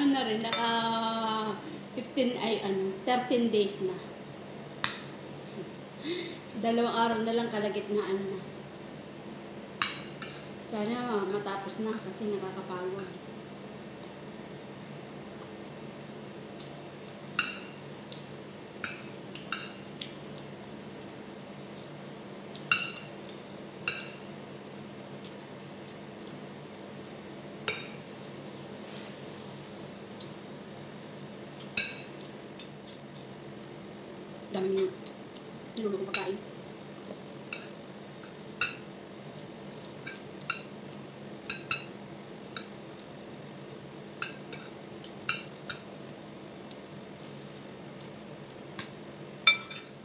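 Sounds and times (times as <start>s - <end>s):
faint steady hum: 0.0s - 50.0s
cutlery clinking on a plate: 49.5s - 50.0s.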